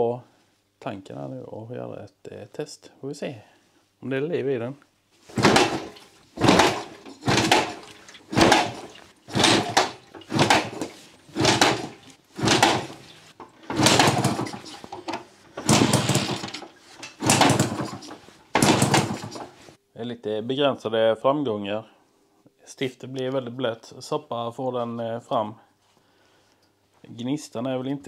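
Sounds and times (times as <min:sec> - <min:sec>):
moped engine cranking: 0:05.3 - 0:19.7.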